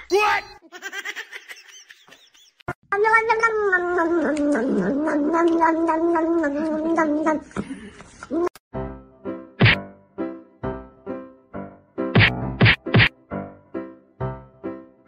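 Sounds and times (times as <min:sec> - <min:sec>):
cat moaning: 0:02.9 - 0:07.6.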